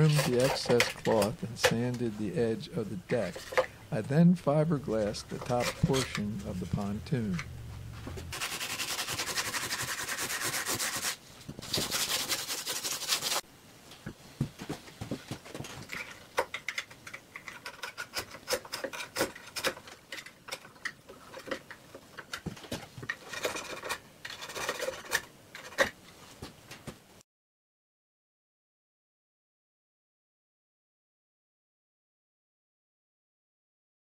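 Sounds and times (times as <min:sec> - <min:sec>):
hand scrapes and clicks: 0:00.0 - 0:02.1, 0:04.9 - 0:13.4
sandpaper sanding fibreglass: 0:08.3 - 0:13.4.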